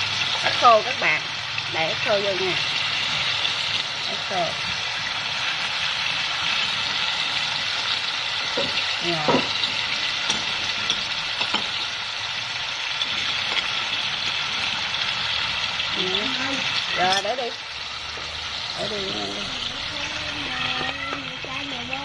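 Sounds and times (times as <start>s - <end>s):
fish sizzling in sauce: 0.0s - 22.0s.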